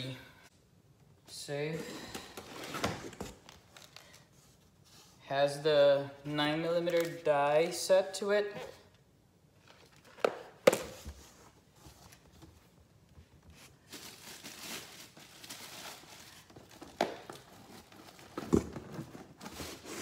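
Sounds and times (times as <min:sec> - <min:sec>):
cardboard and paper rustling: 0:09.6 - 0:20.0.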